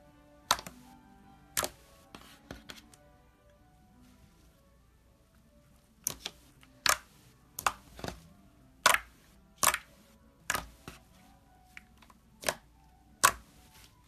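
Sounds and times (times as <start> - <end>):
slime squeezed popping and clicking: 8.8 - 10.7, 12.4 - 13.5.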